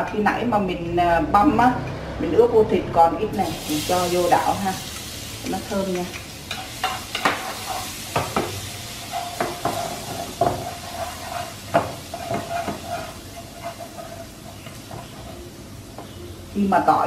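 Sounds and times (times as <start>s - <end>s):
garlic sizzling in oil: 3.3s - 17.0s
utensil scraping a pan: 6.5s - 15.5s.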